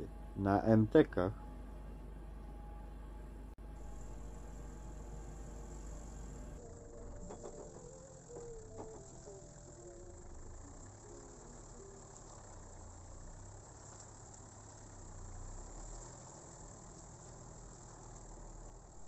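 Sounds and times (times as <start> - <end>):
low rumble: 3.2 - 13.8
insects chirring: 3.8 - 19.0.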